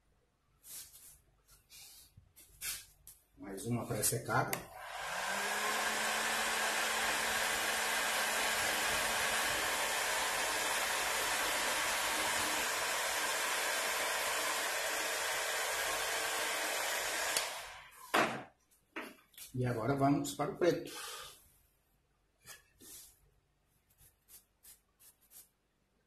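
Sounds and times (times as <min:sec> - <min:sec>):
heat gun blowing air: 0:04.6 - 0:18.3.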